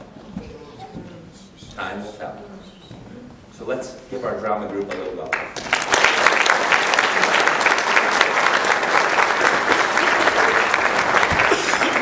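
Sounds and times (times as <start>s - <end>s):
audience applauding: 5.3s - 12.0s.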